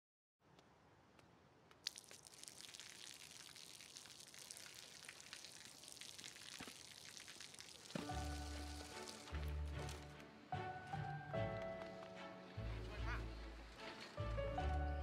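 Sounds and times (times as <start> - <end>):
water splattering on pavement: 1.8 - 9.9
soft music with low notes: 8.0 - 15.0.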